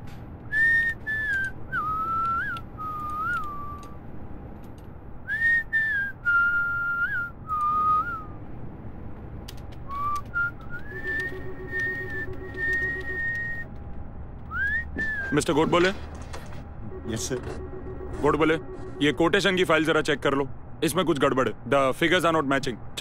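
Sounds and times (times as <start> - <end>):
faint steady hum: 0.0 - 23.0
man whistling a tune: 0.5 - 4.0, 5.3 - 8.4, 9.9 - 13.7, 14.5 - 15.4.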